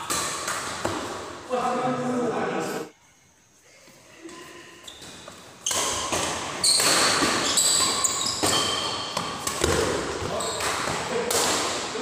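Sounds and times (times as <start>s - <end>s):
racket hitting shuttlecock: 0.0s - 1.3s, 5.0s - 11.9s
sneakers squeaking on court: 4.8s - 11.0s.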